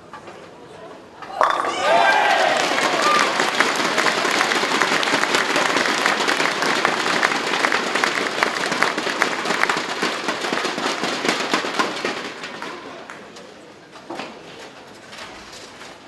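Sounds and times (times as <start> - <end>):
crowd clapping: 1.4 - 13.4.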